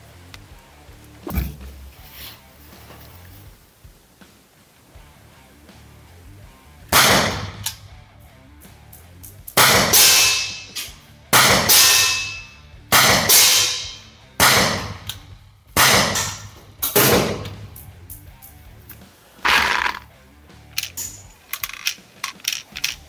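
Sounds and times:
air pistol shots echoing: 0:06.9 - 0:07.8, 0:09.6 - 0:15.2, 0:15.8 - 0:17.8
ball clanging on metal target: 0:11.8 - 0:12.6.

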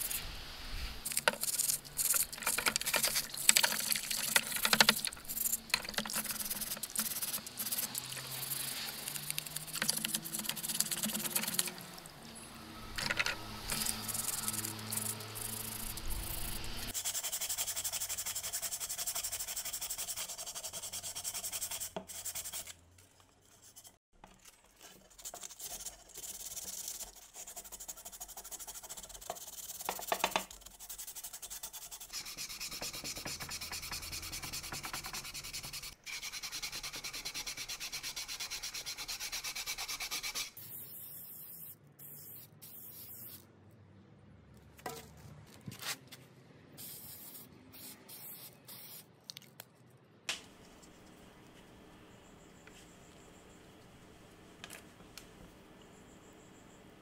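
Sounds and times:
sandpaper scrubbing plastic: 0:01.0 - 0:12.0, 0:13.7 - 0:22.8, 0:24.7 - 0:41.7.

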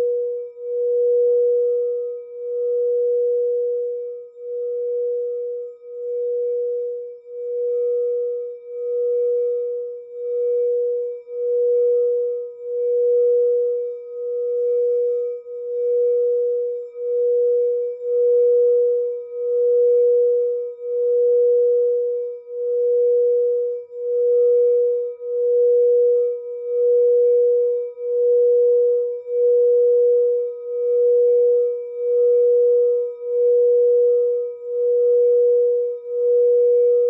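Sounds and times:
singing bowl sustained tone: 0:00.0 - 0:37.0.

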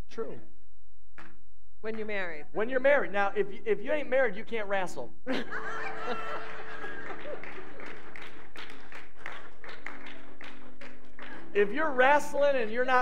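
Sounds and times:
crowd laughing: 0:05.3 - 0:08.2
crowd clapping: 0:05.8 - 0:12.2.

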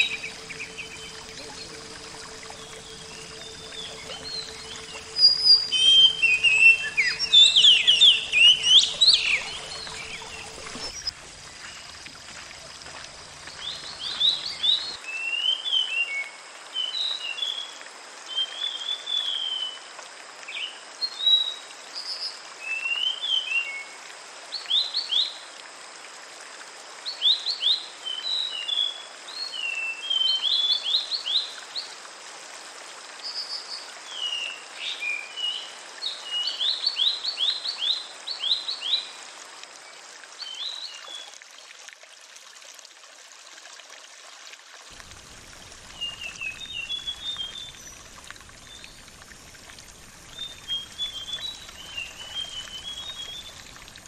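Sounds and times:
songbirds singing: 0:00.0 - 0:11.1, 0:45.0 - 0:53.9
small waterfall rushing: 0:00.0 - 0:54.0.

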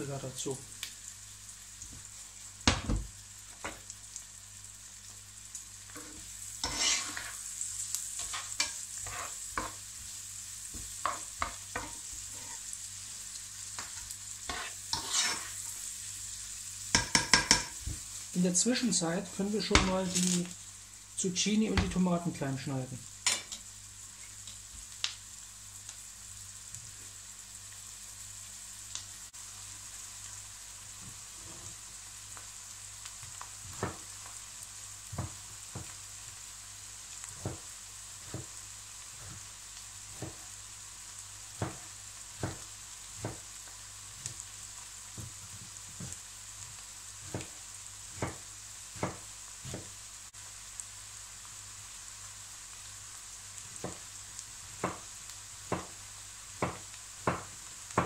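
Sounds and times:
onions sizzling in a pan: 0:00.0 - 0:58.0
knife knocking on cutting board: 0:02.7 - 0:03.1.

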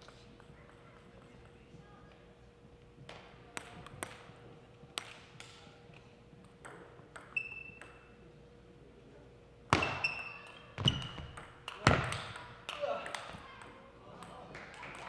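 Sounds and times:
table tennis ball bouncing: 0:03.1 - 0:04.4, 0:06.5 - 0:08.1, 0:09.7 - 0:15.0.

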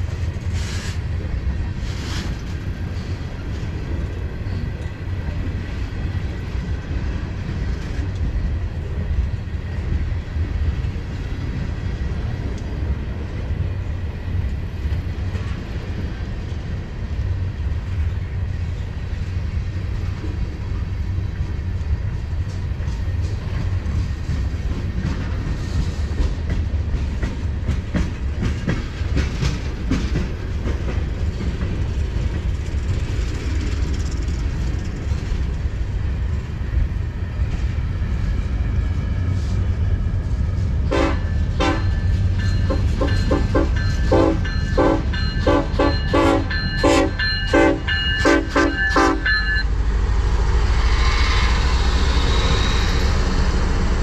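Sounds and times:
freight train rumbling past: 0:00.0 - 0:54.0
train wheels clicking over rails: 0:14.3 - 0:54.0.

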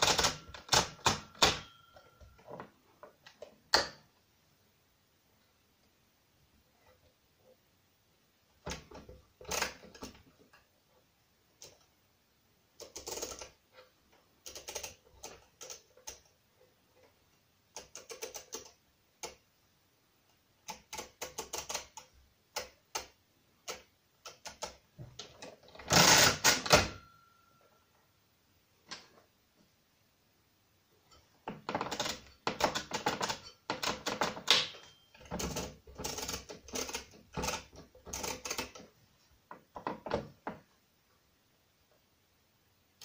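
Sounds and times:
mechanical calculator ratcheting clicks: 0:00.0 - 0:01.8, 0:12.8 - 0:13.6, 0:14.4 - 0:16.3, 0:17.7 - 0:19.4, 0:20.6 - 0:24.8, 0:25.8 - 0:27.0, 0:31.7 - 0:34.6, 0:35.2 - 0:38.8
mechanical calculator clattering: 0:00.0 - 0:02.1, 0:12.8 - 0:13.6, 0:14.4 - 0:16.2, 0:17.8 - 0:18.7, 0:20.7 - 0:22.0, 0:25.8 - 0:27.1, 0:31.6 - 0:38.8.

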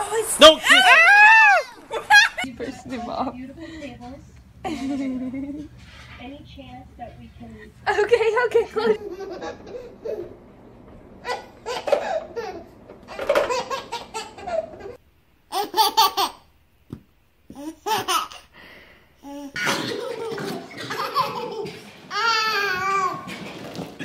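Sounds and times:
babies laughing: 0:08.8 - 0:10.4, 0:11.2 - 0:16.5, 0:17.5 - 0:18.5, 0:19.3 - 0:24.0.

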